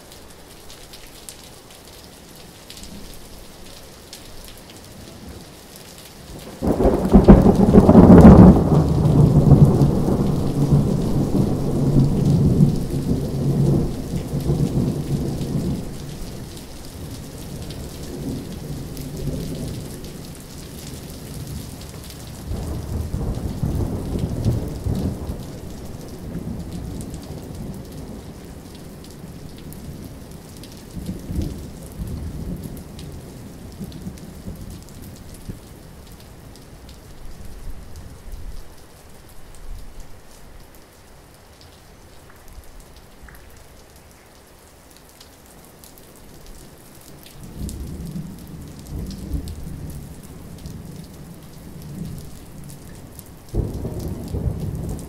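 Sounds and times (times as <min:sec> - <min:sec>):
steady rainfall: 0:00.0 - 0:55.0
thunder: 0:06.6 - 0:15.8.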